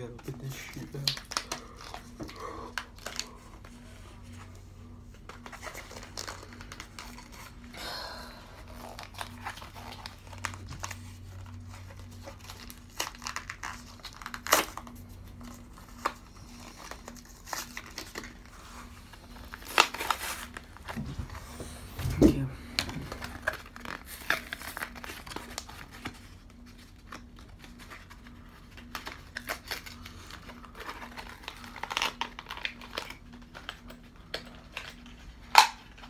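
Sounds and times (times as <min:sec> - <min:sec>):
packaging crinkling and tearing: 0:00.0 - 0:36.0
plastic cracks: 0:00.1 - 0:03.3, 0:28.8 - 0:36.0.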